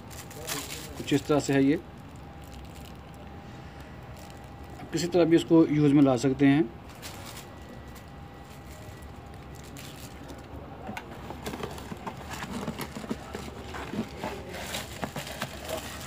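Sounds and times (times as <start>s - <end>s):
small crinkles and clicks: 0.0s - 1.3s, 2.0s - 3.3s, 6.9s - 16.0s
cardboard and plastic wrap rustling: 0.0s - 3.2s, 6.8s - 16.0s.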